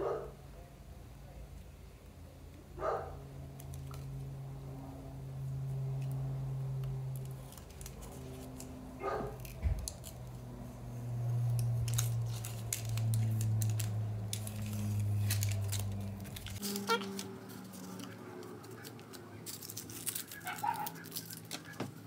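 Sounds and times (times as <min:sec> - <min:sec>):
paper crinkling and crackling: 0:07.1 - 0:22.0.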